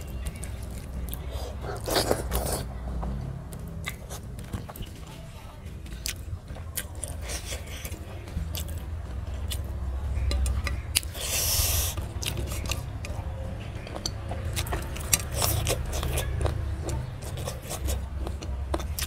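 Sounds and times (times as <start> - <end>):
chewing: 0.0 - 5.3, 5.9 - 19.0
fingers mixing food on metal plate: 5.9 - 19.0.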